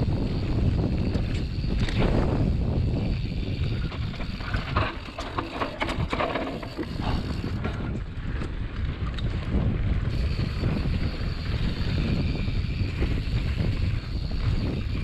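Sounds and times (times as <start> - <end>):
bike rattling and clicking: 0.0 - 15.0
bike tyre rumble on dirt: 0.0 - 15.0
low wind rumble on microphone: 0.0 - 15.0.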